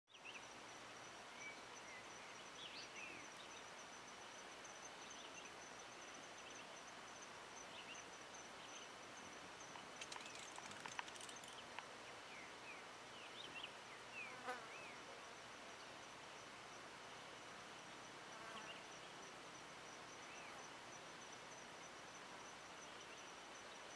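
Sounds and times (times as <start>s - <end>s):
high-pitched insect trill: 3.2s - 11.8s
short rattle: 9.9s - 11.8s
sharp clicks: 9.9s - 11.9s.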